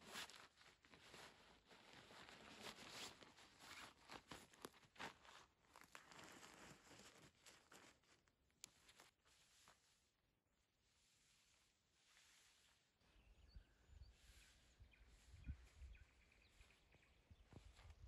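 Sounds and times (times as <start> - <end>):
light clicks and crackles: 0.0 - 9.8
faint rustling: 10.9 - 18.0.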